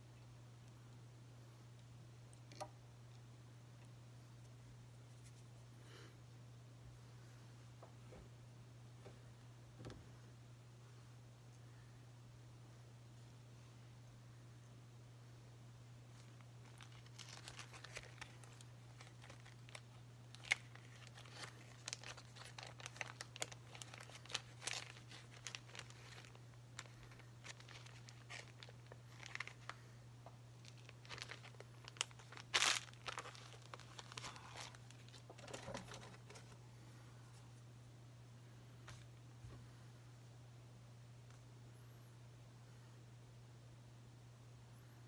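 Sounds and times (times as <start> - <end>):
feather rustling and crinkling: 16.1 - 29.8, 30.6 - 36.5.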